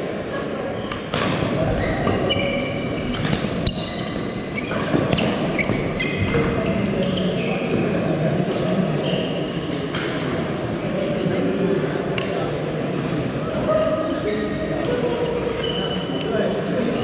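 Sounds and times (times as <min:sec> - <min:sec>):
din of busy hall: 0:00.0 - 0:17.0
shoe squeaks on court: 0:01.8 - 0:07.9.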